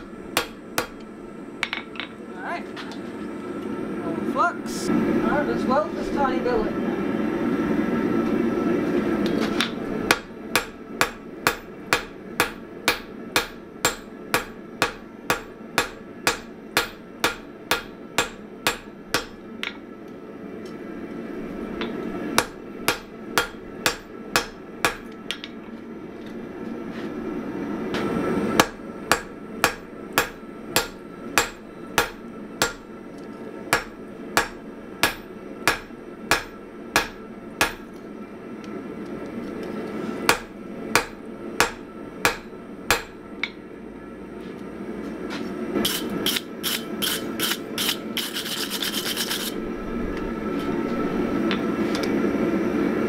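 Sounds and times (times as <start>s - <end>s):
hammer striking steel on anvil: 0.0s - 1.0s, 9.6s - 19.8s, 21.8s - 25.6s, 28.6s - 32.9s, 33.7s - 37.8s, 40.3s - 43.6s.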